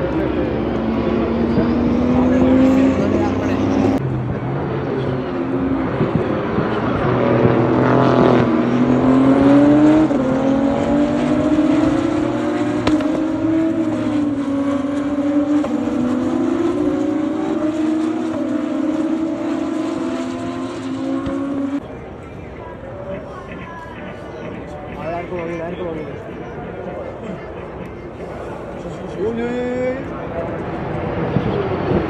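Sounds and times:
racing car engine accelerating: 0.0 - 21.8.

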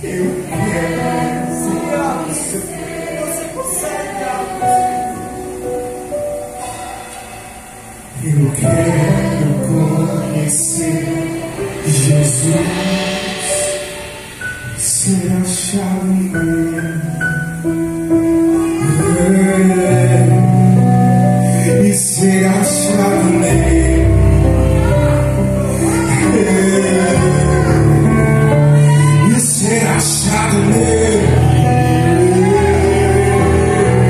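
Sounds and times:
sustained instrumental accompaniment: 0.0 - 34.0
person singing long notes: 18.3 - 34.0.

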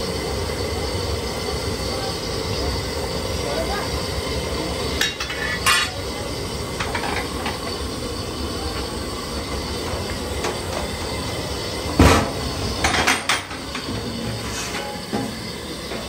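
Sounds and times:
gas burner roaring: 0.0 - 16.0
metal pot handles clanking: 5.0 - 6.0
loud metallic knock: 12.0 - 13.2.

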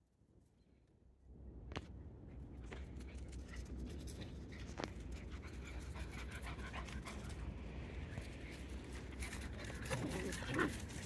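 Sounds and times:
puppies panting: 3.4 - 7.6.

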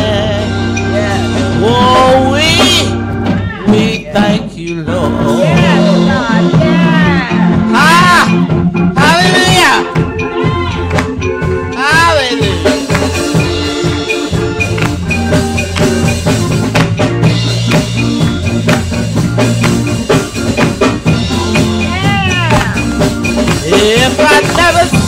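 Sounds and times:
person singing: 0.0 - 9.5, 23.5 - 25.0
drum kit beat: 0.0 - 25.0
organ and bass chords: 0.0 - 25.0.

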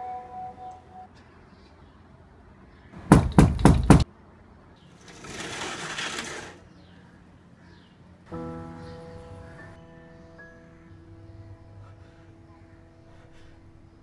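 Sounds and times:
sharp knocks on a door: 3.0 - 4.0
sliding door rolling open: 4.9 - 6.7.

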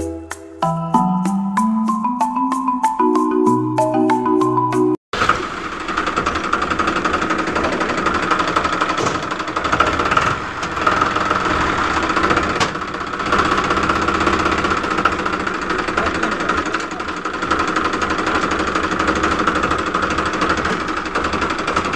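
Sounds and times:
small engine knocking rattle: 5.2 - 21.9.

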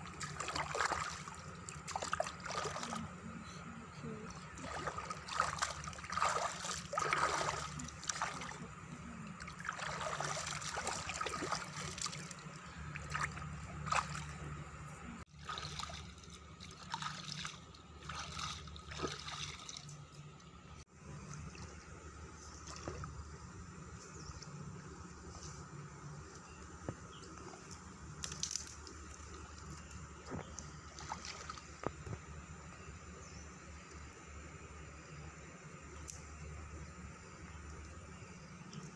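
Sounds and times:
hands splashing in stream water: 0.0 - 3.0, 4.6 - 8.7, 9.4 - 14.4, 15.4 - 20.0
water trickling: 4.3 - 14.4.

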